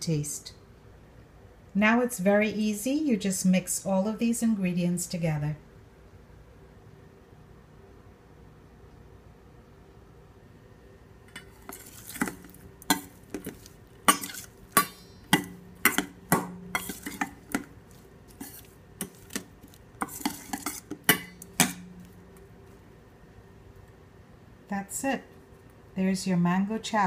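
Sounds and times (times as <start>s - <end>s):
metal spoon clinking in bowl: 11.3s - 17.7s, 20.0s - 22.2s.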